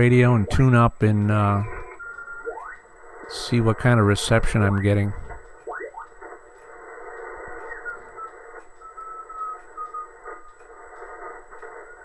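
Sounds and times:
radio band hiss: 0.0s - 12.0s
whistling radio tones sliding in pitch: 6.9s - 12.0s.

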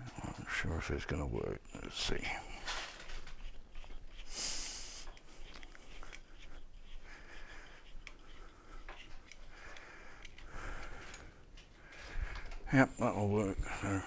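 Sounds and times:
hands clicking and scraping fitting: 5.0s - 11.7s.

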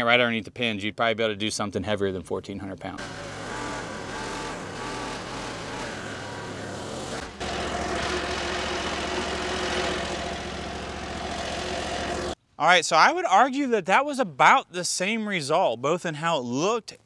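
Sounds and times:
skid steer engine running: 3.0s - 12.4s.

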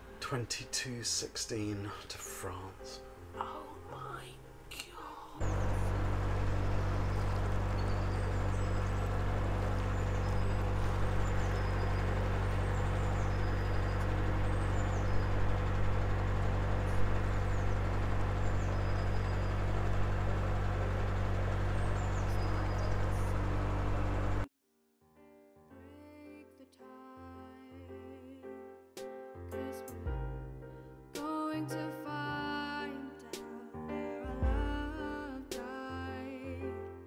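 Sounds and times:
small birds chirping: 5.2s - 24.5s
diesel boat engine droning: 5.4s - 24.5s.

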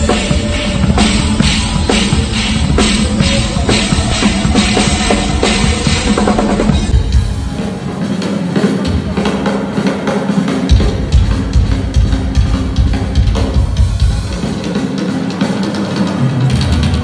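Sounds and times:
heavy kick drum strokes: 0.0s - 7.9s
drum solo: 0.0s - 17.0s.

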